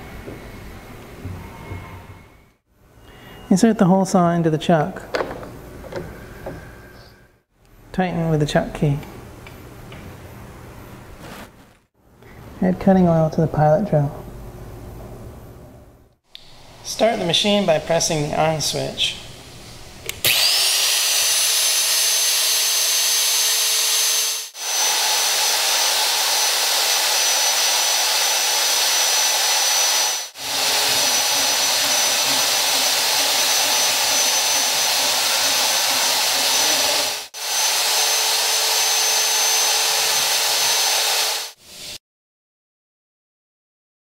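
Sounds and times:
electric motor whining: 20.2 - 41.6
hole saw cutting metal pipe: 20.2 - 41.6.

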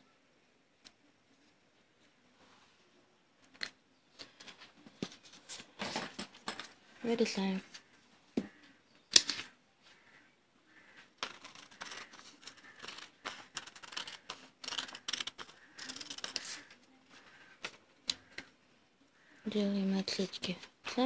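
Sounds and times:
scissors snipping paper: 11.2 - 16.8.

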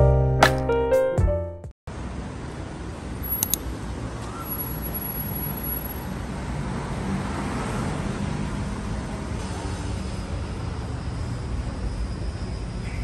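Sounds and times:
passing cars hum: 1.9 - 12.8
sharp clicks: 3.3 - 3.7.

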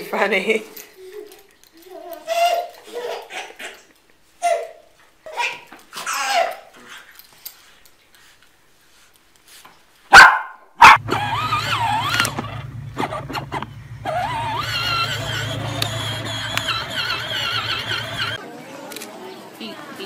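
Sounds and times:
small dog barking: 10.1 - 11.1
toy motor humming: 11.0 - 18.4.

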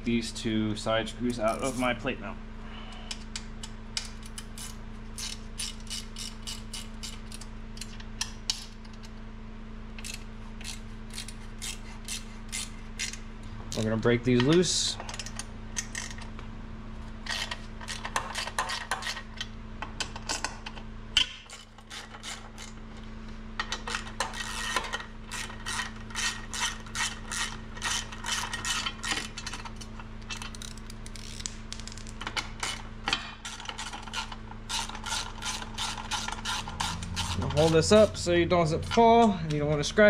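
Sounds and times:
hand ratchet clicking: 23.8 - 32.1, 33.4 - 38.1.

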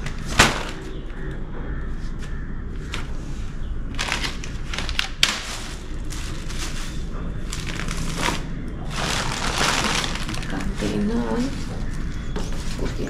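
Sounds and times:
plastic bags crinkling: 3.9 - 13.0.

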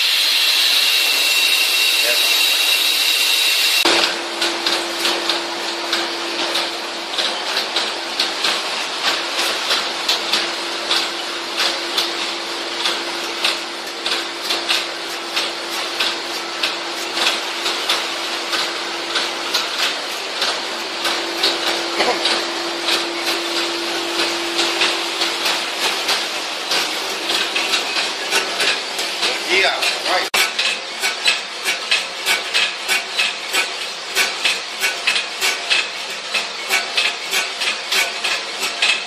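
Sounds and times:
machine hum: 0.0 - 31.0.

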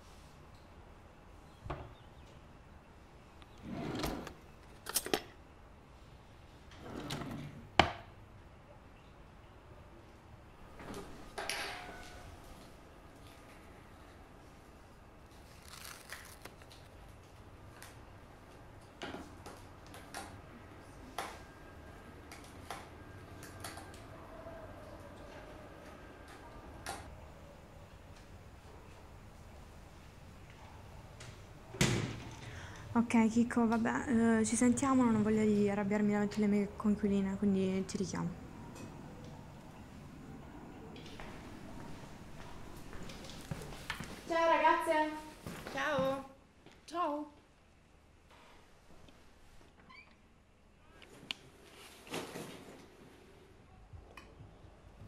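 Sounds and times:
low room hum: 0.0 - 55.0
rustling: 15.3 - 16.9.

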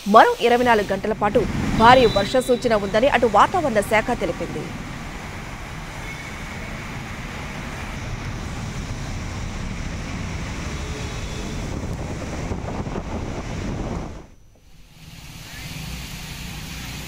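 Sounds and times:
heavy rain pouring: 0.0 - 17.0
vehicles driving through water: 0.4 - 12.6.

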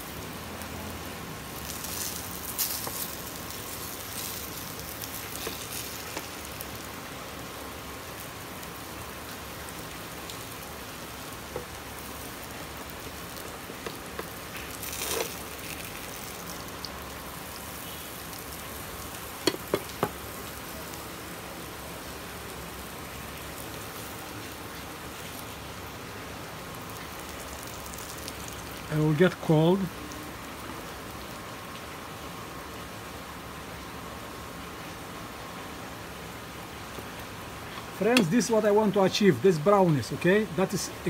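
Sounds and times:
food sizzling in frying pan: 0.0 - 29.2.

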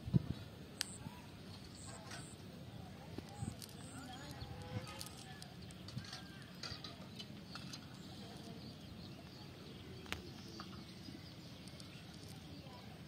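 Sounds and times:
low outdoor background: 0.0 - 13.0
faint ticks: 0.8 - 1.0.

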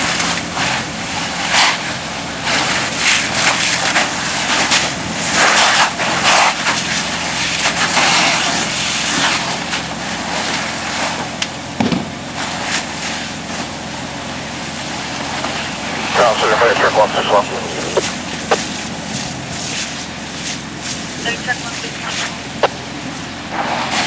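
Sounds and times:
steady low hum: 15.4 - 23.3.

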